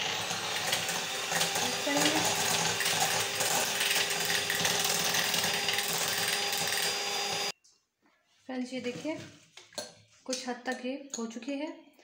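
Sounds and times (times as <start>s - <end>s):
electric hand mixer whipping cream: 0.0s - 7.6s.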